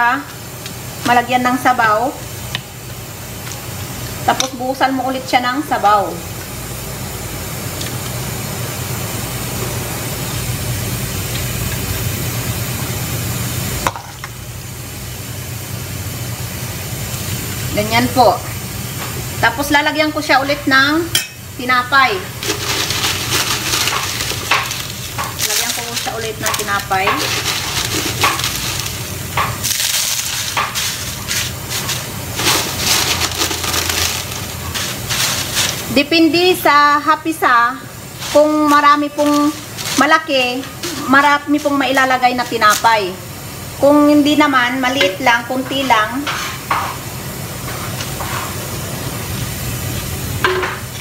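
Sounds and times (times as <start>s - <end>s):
kitchen hiss: 0.0s - 51.0s
flatbread crackling and rustling: 22.4s - 36.0s.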